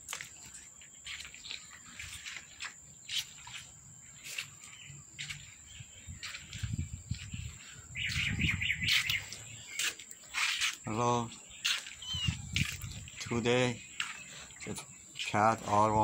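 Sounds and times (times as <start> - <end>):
insect chirps: 0.0 - 16.0
insects droning: 0.0 - 16.0.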